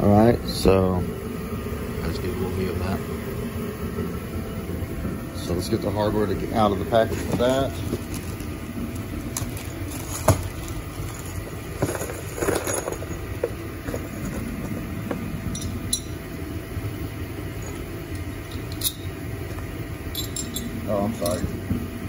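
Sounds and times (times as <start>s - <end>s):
low background hum: 0.0s - 22.0s
bolts and nuts clinking: 11.8s - 14.4s, 15.5s - 16.2s, 17.6s - 19.2s, 20.1s - 21.5s.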